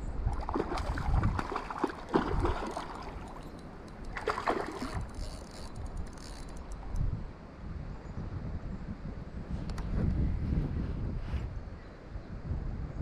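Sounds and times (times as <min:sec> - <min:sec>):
water splashing and sloshing: 0:00.0 - 0:07.0
wind rumble on microphone: 0:00.0 - 0:13.0.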